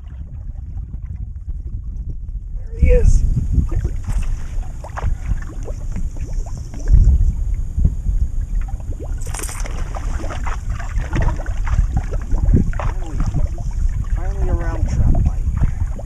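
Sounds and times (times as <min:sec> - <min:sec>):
waves lapping against boat hull: 0:00.0 - 0:16.0
wind rumbling on microphone: 0:00.0 - 0:16.0
small splashes and ticks: 0:03.7 - 0:07.2, 0:08.4 - 0:16.0.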